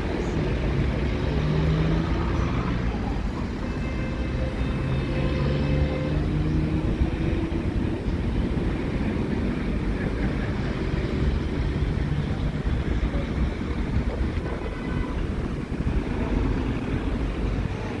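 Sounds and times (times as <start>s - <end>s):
vehicle engines rumbling: 0.0s - 18.0s
wind buffeting microphone: 6.6s - 18.0s.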